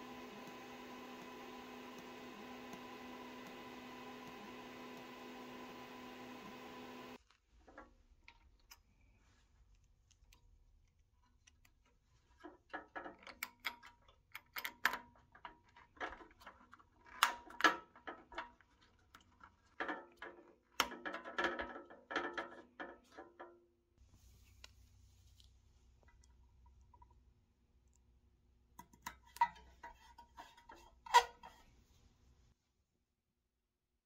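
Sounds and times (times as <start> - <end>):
small clicks and rattles: 9.7 - 23.6.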